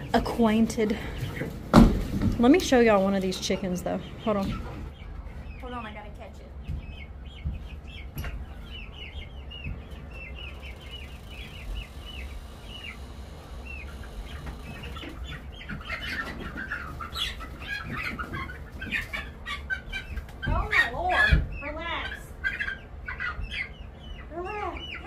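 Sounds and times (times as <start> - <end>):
chickens clucking and squawking: 0.0 - 25.0
chicks peeping: 0.0 - 25.0
low hum: 2.4 - 15.8.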